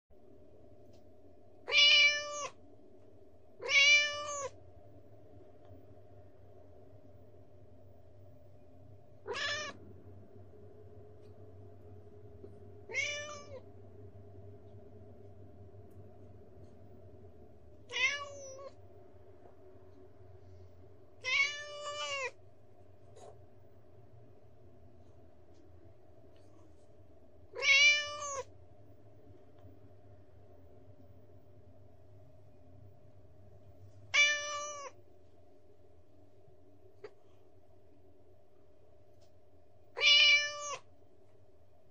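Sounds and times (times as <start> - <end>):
kitten meowing: 1.7 - 2.6, 3.6 - 4.5, 9.3 - 9.8, 12.9 - 13.6, 17.9 - 18.7, 21.2 - 22.4, 27.6 - 28.5, 34.1 - 35.0, 40.0 - 40.8.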